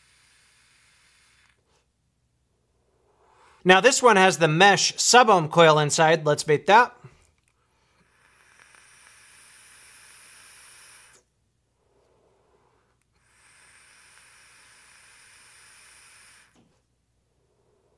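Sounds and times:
faint hiss of vape draw: 0.0 - 1.9, 7.6 - 17.9
quiet exhale: 0.0 - 1.9, 2.6 - 3.6, 7.1 - 17.9.

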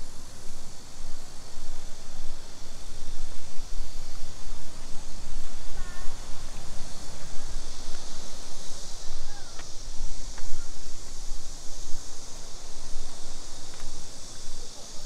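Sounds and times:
steady rumble and hiss: 0.0 - 15.0
wind on microphone: 0.0 - 15.0
faint short high calls: 9.0 - 9.6.

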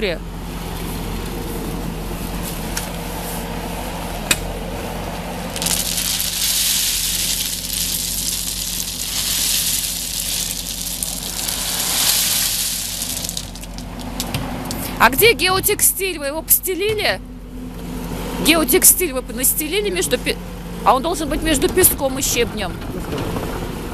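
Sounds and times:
loader engine running: 0.0 - 23.9
crushed stone pouring: 5.5 - 14.9.

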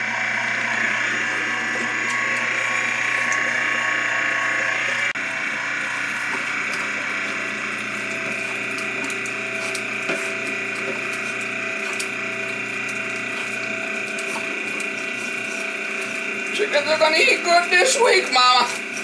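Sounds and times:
electric meat grinder running: 0.0 - 19.0.

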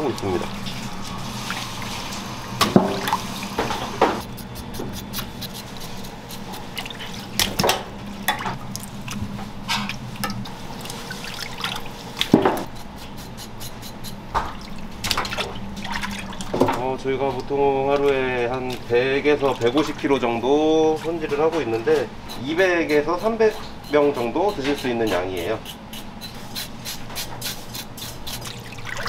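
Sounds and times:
steady low hum: 0.0 - 29.0
sharp splashes and knocks: 6.8 - 9.2, 14.4 - 16.8
water splashing and dripping: 9.8 - 12.4, 14.4 - 20.2, 28.4 - 29.0.

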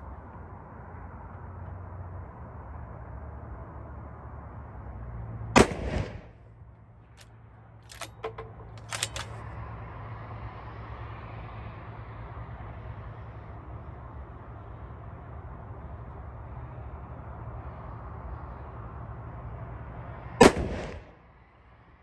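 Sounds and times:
rifle shot: 5.6 - 6.4, 7.9 - 9.4, 20.4 - 21.1
rifle bolt clicking: 7.9 - 9.4.

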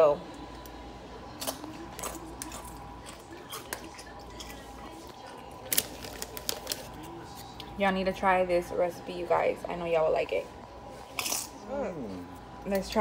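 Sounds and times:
foil snack bag crinkling: 2.0 - 7.5.

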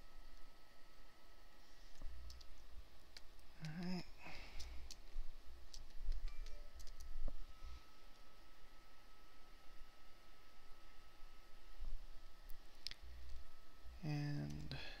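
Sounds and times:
computer mouse clicks: 1.9 - 3.9, 5.7 - 7.1.

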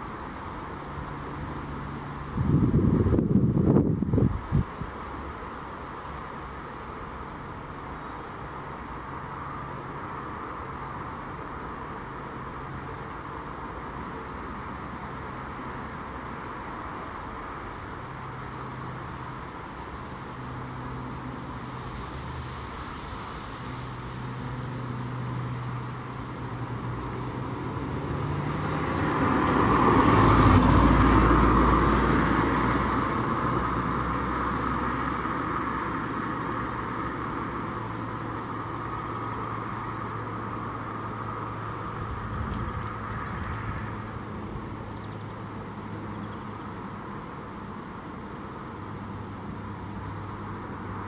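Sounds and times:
low hum of traffic: 0.0 - 51.0
motor vehicle passing: 20.3 - 47.0.

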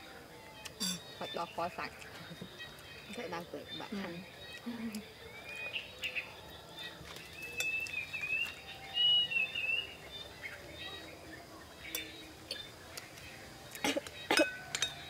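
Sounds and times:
spoons clinking on bowls: 0.8 - 1.1, 7.5 - 7.9, 14.3 - 15.0
bird chirping and whistling: 7.5 - 10.0.

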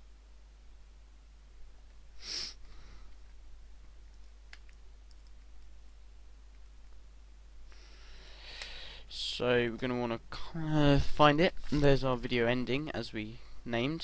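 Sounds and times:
low steady hum: 0.0 - 14.0
computer mouse clicks: 4.1 - 5.5
breath close to microphone: 7.7 - 9.1.

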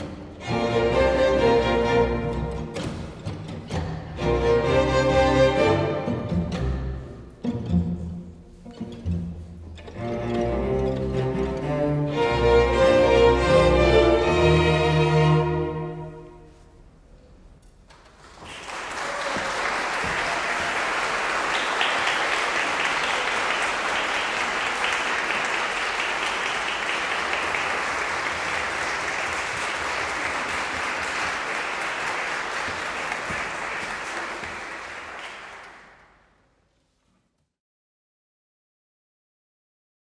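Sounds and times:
string ensemble chord: 9.8 - 16.5
audience applauding: 17.9 - 36.2.

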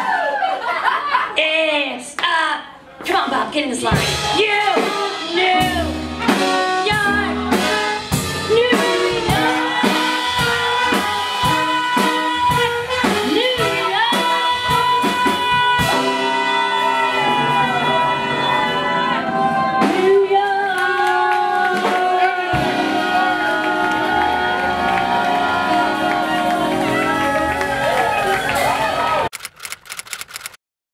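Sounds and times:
woman singing: 3.1 - 6.0, 6.7 - 27.2
drum kit beat: 3.8 - 19.0, 19.7 - 29.3
trombone: 4.0 - 19.1, 22.2 - 29.3
trumpet: 4.0 - 29.3
saxophone: 4.2 - 29.3.

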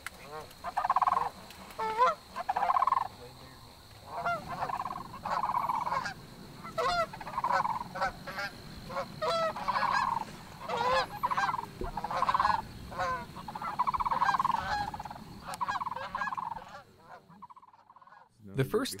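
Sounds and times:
geese honking overhead: 0.2 - 18.3.

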